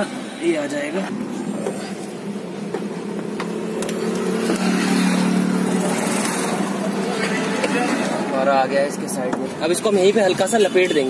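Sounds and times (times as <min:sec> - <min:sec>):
engine running with steady hum: 0:00.0 - 0:08.3.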